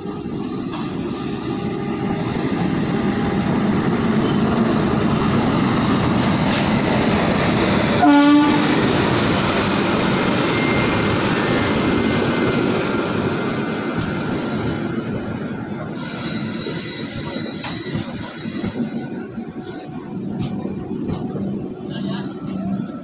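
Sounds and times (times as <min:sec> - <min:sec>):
train wheels rumbling: 0:00.0 - 0:23.0
train horn blast: 0:08.0 - 0:08.8.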